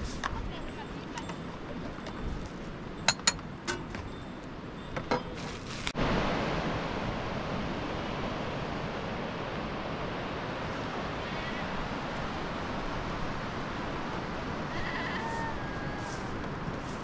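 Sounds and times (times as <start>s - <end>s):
river rushing: 5.9s - 17.0s.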